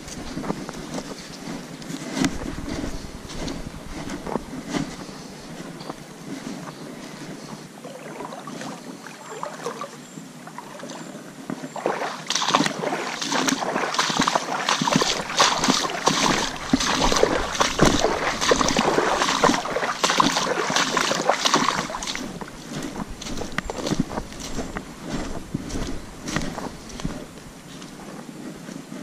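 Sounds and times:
water splashing and sloshing: 0.0 - 28.6.

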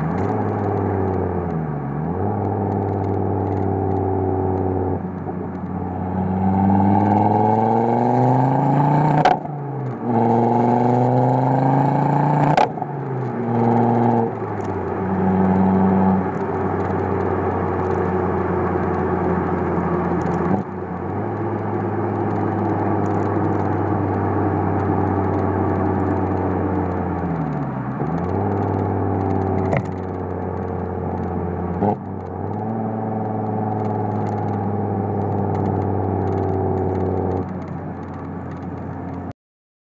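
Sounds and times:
car exhaust accelerating: 0.0 - 39.3.

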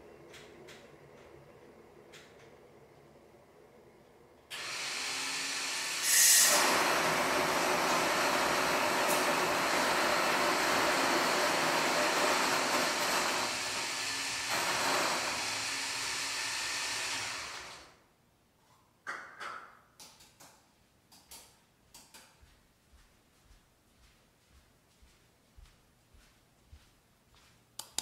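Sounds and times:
electric coffee grinder grinding: 4.5 - 17.8.

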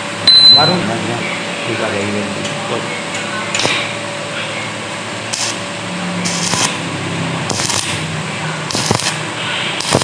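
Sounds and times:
low steady hum: 0.0 - 10.0
welding arc crackling: 5.3 - 10.0.

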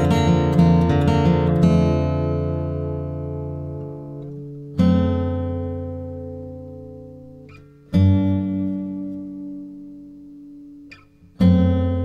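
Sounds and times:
guitar chords ringing: 0.0 - 12.0.

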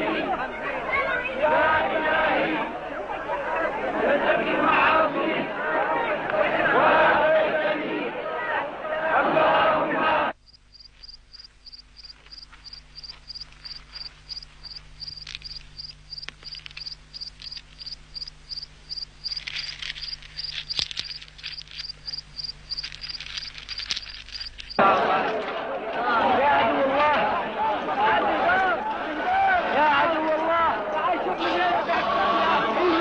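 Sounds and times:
low steady hum: 10.3 - 24.8
cricket chirping: 10.4 - 24.8
clicking and rustling: 10.8 - 24.8.

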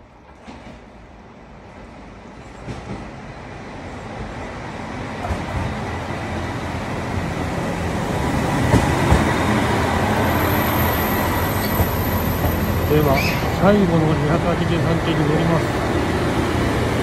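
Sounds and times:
diesel train engines: 0.0 - 17.0
train wheels on rails: 0.0 - 17.0
train wheel knocks: 8.6 - 9.3.

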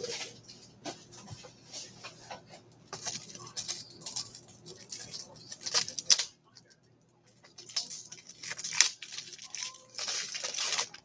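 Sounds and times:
plastic card packaging clicking: 3.0 - 6.3, 7.5 - 11.0.

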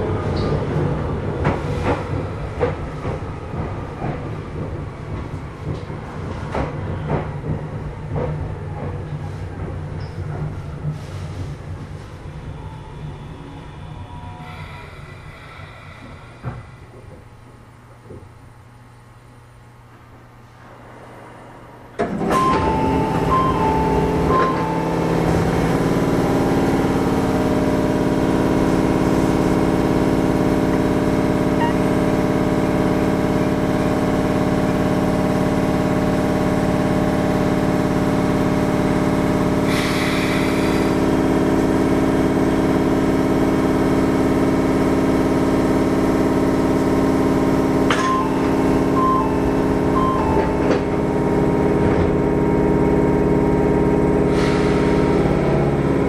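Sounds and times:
train track noise: 0.0 - 18.5, 19.9 - 56.0
electric train drone: 12.2 - 18.4, 20.6 - 56.0.

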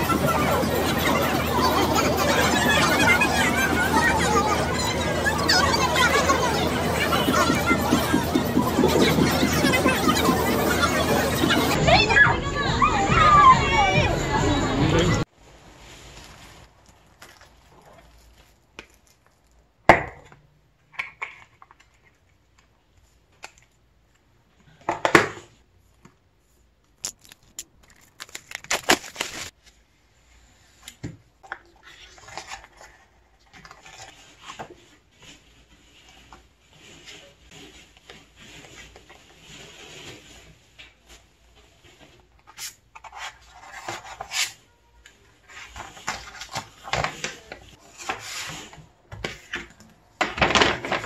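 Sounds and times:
paper pages rustling: 15.4 - 19.7, 26.8 - 29.9, 31.8 - 51.0
shrink-wrap crinkling and tearing: 15.7 - 19.7, 26.9 - 29.6.

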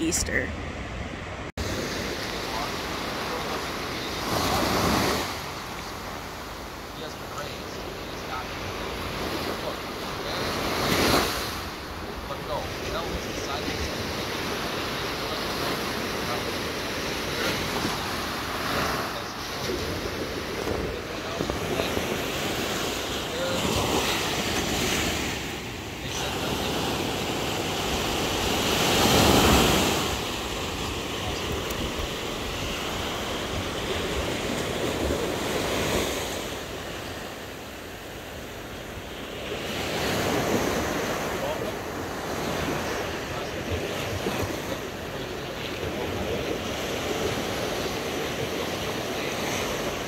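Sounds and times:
small waves washing on sand: 1.6 - 50.0
wind rumbling on microphone: 8.7 - 37.2.

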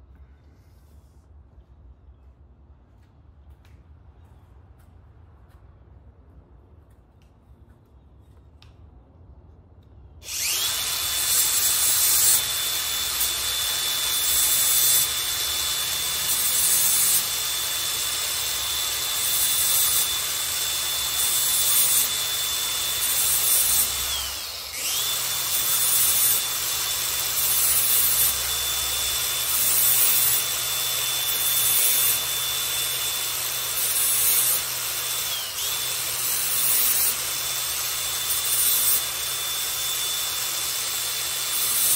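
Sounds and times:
angle grinder whining: 10.2 - 41.9
grinding disc on metal blade: 10.2 - 41.9.

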